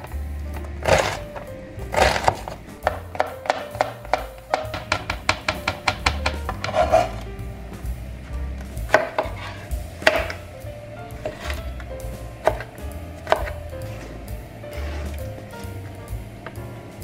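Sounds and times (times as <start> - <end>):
knife chopping on plastic board: 1.9 - 7.1, 8.9 - 9.4, 12.4 - 13.6.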